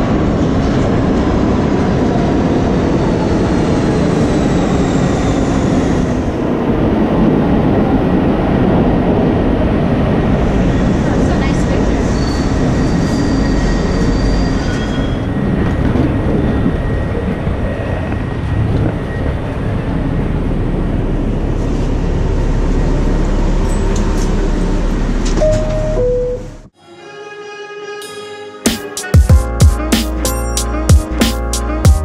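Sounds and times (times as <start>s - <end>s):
subway train rumbling on rails: 0.0s - 26.8s
high squeal: 11.9s - 15.6s
two-note falling chime: 25.4s - 26.6s.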